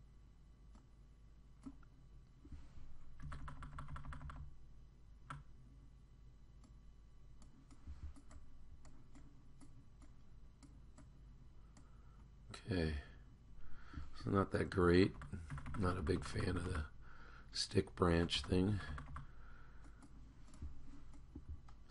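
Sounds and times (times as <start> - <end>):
keyboard and mouse clicks: 1.6 - 1.9, 7.4 - 11.1, 15.1 - 16.8, 17.9 - 21.9.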